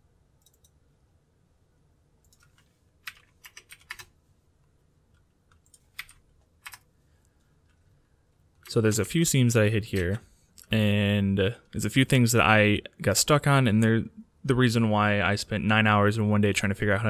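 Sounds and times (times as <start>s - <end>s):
computer mouse and keyboard clicks: 0.4s - 0.8s, 2.2s - 4.1s, 5.2s - 6.9s.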